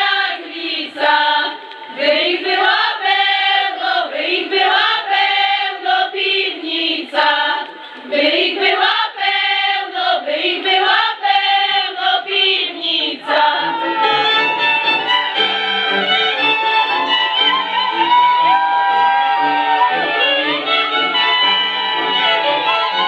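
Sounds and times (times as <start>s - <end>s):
women singing unaccompanied: 0.0s - 14.3s.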